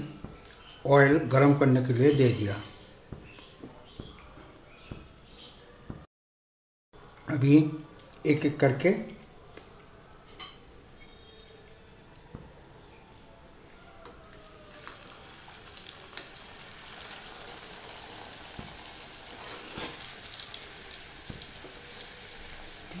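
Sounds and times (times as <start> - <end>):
flatbread sizzling in hot oil: 14.5 - 23.0.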